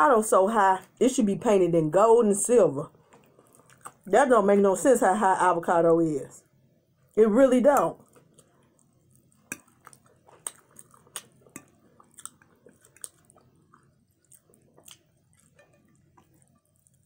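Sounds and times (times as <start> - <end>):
close chewing with wet smacks: 3.0 - 4.1, 7.7 - 17.0.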